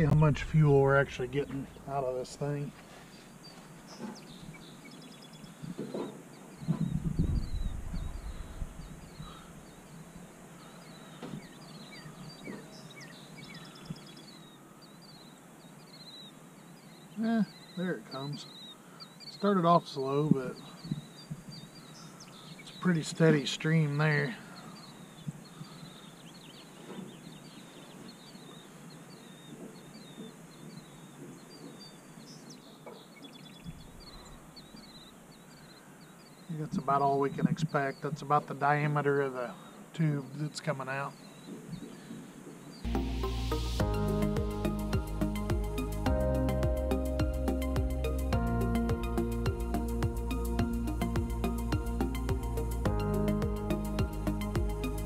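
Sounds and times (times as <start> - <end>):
low rumble: 0.0 - 2.0
faint steady hiss: 0.0 - 55.0
small birds chirping: 0.0 - 55.0.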